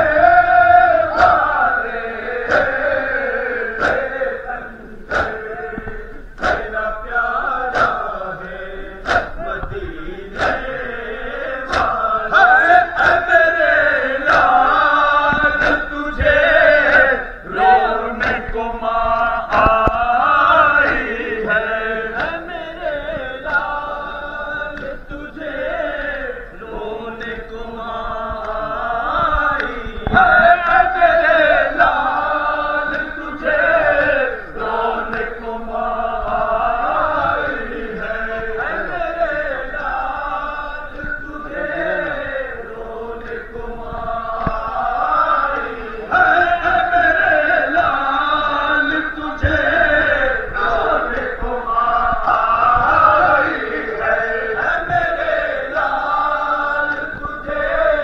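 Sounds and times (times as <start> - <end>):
men chanting together: 0.0 - 58.0
chest-beating slaps: 1.2 - 4.3, 5.1 - 6.9, 7.6 - 8.2, 9.0 - 12.2, 12.8 - 17.1, 18.2 - 21.2, 22.2 - 22.5.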